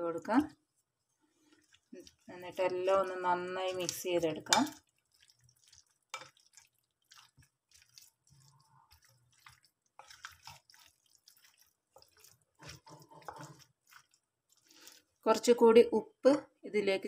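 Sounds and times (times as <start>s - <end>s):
wooden spoon stirring food: 0.2s - 15.5s.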